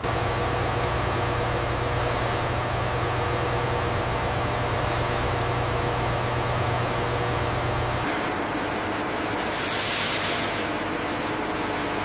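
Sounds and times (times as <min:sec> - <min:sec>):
factory machinery hum: 0:00.0 - 0:12.0
short high hisses: 0:04.8 - 0:05.3.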